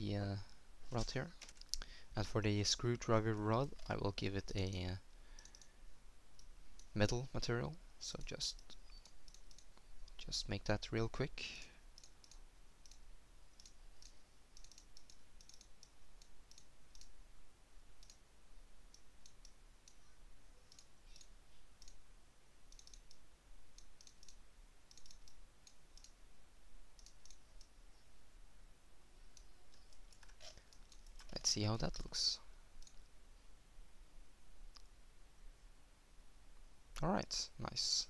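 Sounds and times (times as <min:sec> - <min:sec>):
computer mouse clicking: 0:05.4 - 0:05.7, 0:08.5 - 0:10.2, 0:11.9 - 0:13.0, 0:13.6 - 0:17.2, 0:18.0 - 0:18.2, 0:20.7 - 0:22.0, 0:22.7 - 0:23.2, 0:23.8 - 0:26.2, 0:27.0 - 0:27.8, 0:29.3 - 0:32.1, 0:32.8 - 0:33.1.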